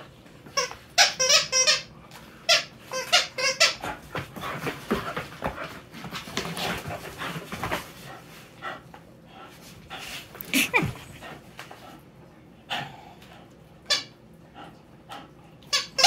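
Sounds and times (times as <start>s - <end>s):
dog toy squeaking: 0.6s - 1.9s
dogs scuffling and tugging: 3.0s - 8.6s.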